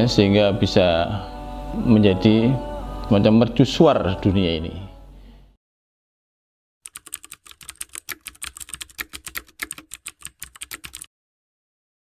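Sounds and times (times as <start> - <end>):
keyboard typing clicks: 6.8 - 11.1.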